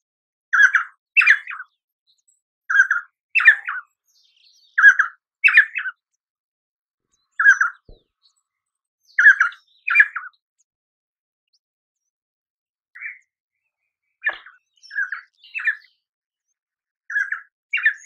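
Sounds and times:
bird calling: 0.6s - 1.7s, 2.7s - 3.9s, 4.8s - 6.0s, 7.3s - 8.1s, 9.2s - 10.3s, 14.2s - 15.9s, 17.1s - 18.0s.

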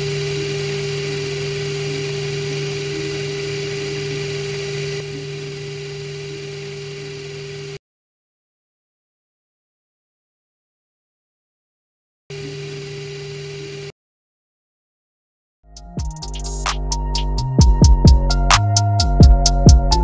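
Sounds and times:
small motor pump whining: 0.0s - 7.8s.

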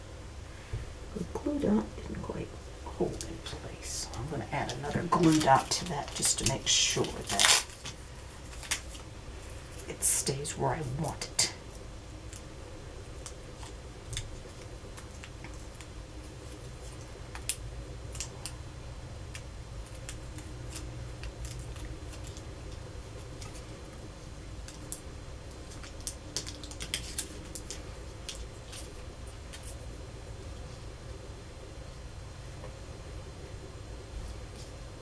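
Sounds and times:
faint steady hum: 0.0s - 35.0s
paper and plastic rustling: 3.2s - 9.9s.

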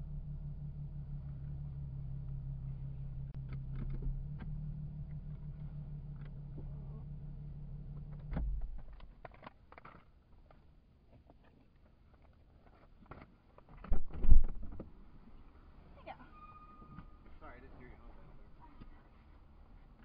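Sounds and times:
low mechanical hum: 0.0s - 20.0s.

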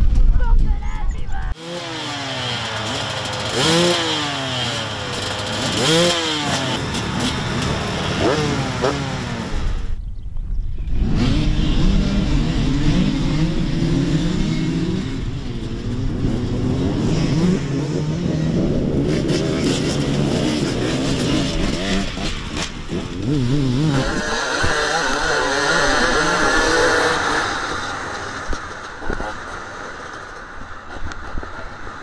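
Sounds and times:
motorcycle engines revving: 1.5s - 10.0s, 10.9s - 32.0s
higher-pitched engine: 1.6s - 9.9s.

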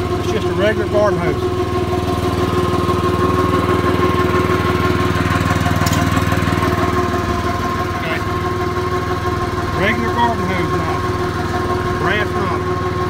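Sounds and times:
small gasoline engine puttering: 0.0s - 13.0s.

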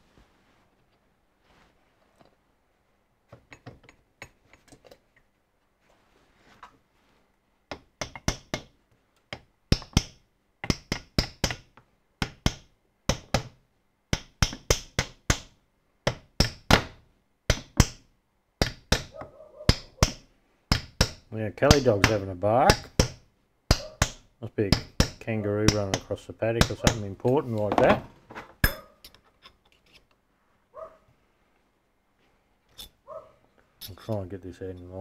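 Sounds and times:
small hammer tapping metal: 7.7s - 8.7s, 9.3s - 13.5s, 14.1s - 16.8s, 18.6s - 27.0s.

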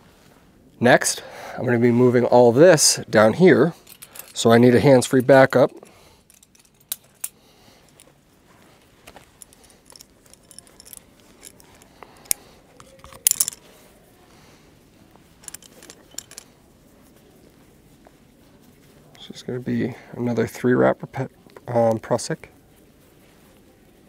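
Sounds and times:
metal climbing gear clicking and jingling: 3.6s - 8.2s, 9.0s - 13.8s, 15.3s - 16.6s.

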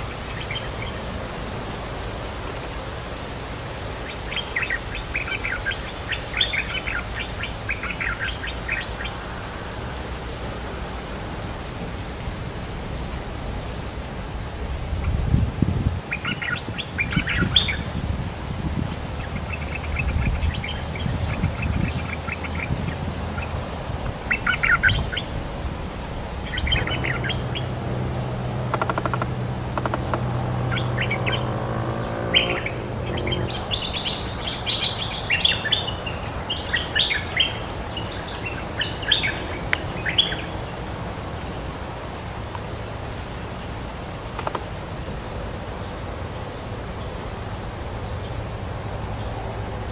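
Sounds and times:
birds chirping: 0.0s - 1.8s, 3.8s - 9.5s, 16.0s - 18.0s, 18.8s - 41.7s
low engine hum: 0.0s - 49.9s.

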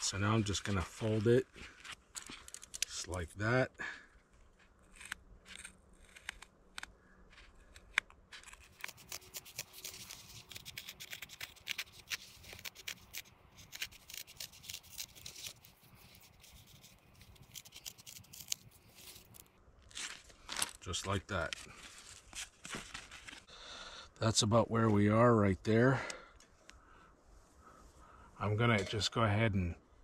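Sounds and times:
scissors snipping: 4.9s - 19.4s.

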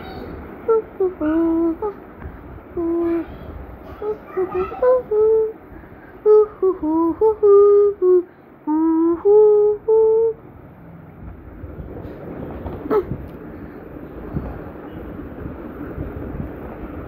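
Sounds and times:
child humming: 0.0s - 2.0s, 2.7s - 5.6s, 6.2s - 10.4s, 12.9s - 13.3s
low rushing noise: 0.0s - 17.0s.

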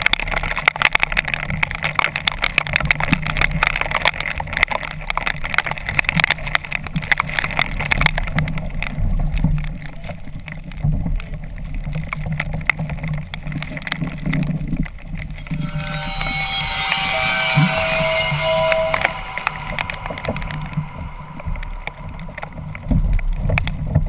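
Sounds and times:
music: 15.4s - 23.4s.

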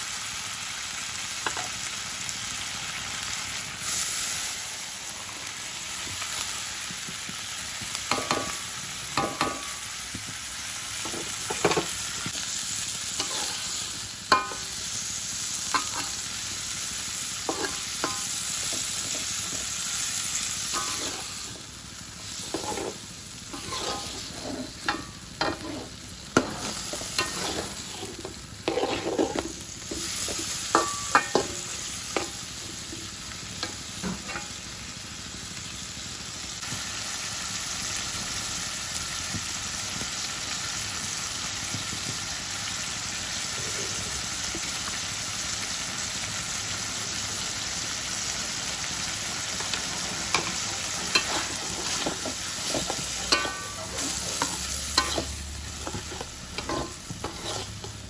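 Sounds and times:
food sizzling in a wok: 0.0s - 58.0s
metal spatula scraping wok: 13.1s - 14.8s, 15.7s - 16.3s, 17.4s - 34.6s, 49.5s - 58.0s.

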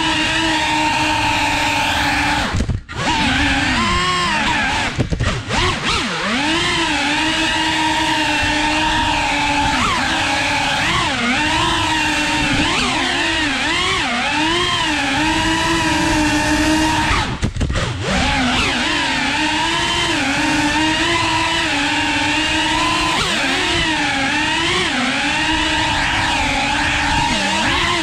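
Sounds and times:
drone motors whining: 0.0s - 28.0s.

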